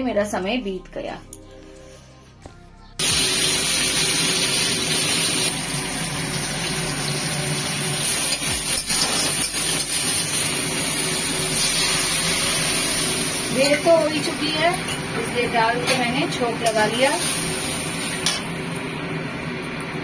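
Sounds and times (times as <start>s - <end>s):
spices sizzling in hot oil: 3.0s - 18.9s.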